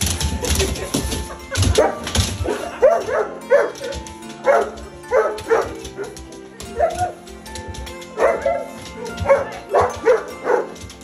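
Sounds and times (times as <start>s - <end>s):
dogs yelping and whining: 8.1s - 10.7s.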